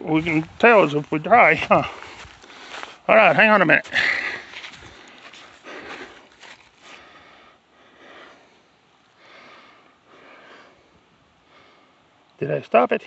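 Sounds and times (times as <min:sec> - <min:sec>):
person breathing heavily: 0:01.6 - 0:03.1, 0:03.8 - 0:12.2.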